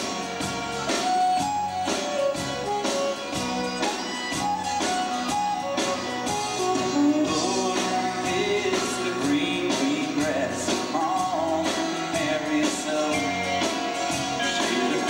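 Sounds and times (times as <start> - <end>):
drums: 0.0 - 15.0
fiddle melody: 0.0 - 15.0
guitar: 0.0 - 15.0.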